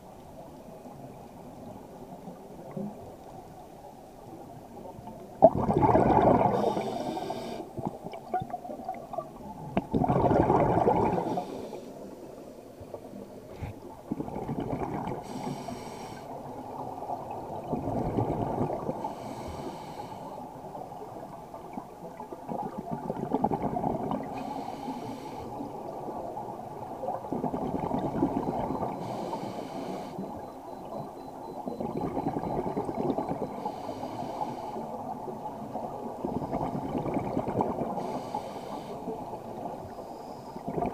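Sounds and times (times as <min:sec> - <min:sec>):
exhaled bubbles burbling: 0:05.4 - 0:07.0, 0:07.8 - 0:11.5, 0:14.0 - 0:15.2, 0:17.5 - 0:19.0, 0:21.8 - 0:24.3, 0:26.4 - 0:29.0, 0:30.4 - 0:33.5, 0:35.5 - 0:38.0, 0:40.6 - 0:40.9
regulator inhale hiss: 0:06.5 - 0:07.8, 0:11.2 - 0:12.1, 0:15.2 - 0:16.4, 0:19.0 - 0:20.4, 0:24.3 - 0:25.7, 0:29.0 - 0:30.5, 0:33.5 - 0:35.0, 0:38.0 - 0:39.2, 0:39.9 - 0:40.7.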